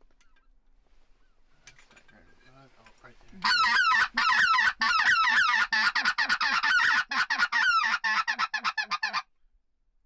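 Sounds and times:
goose call honks and clucks: 3.4 - 9.3.

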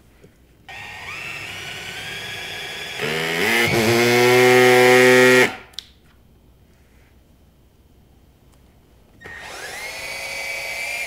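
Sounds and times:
cordless drill boring into wood: 0.7 - 5.6, 9.2 - 11.0.

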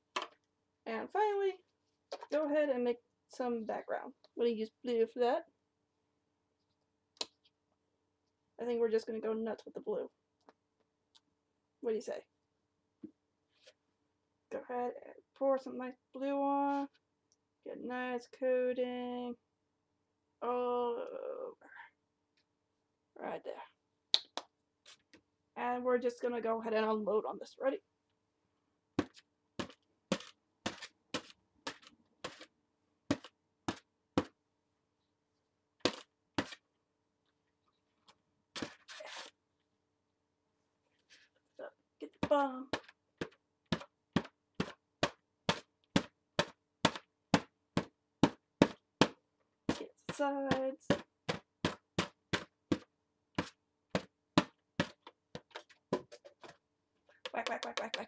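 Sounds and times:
balloon scuffing on paper: 29.0 - 32.5, 35.8 - 36.6, 38.6 - 39.4.

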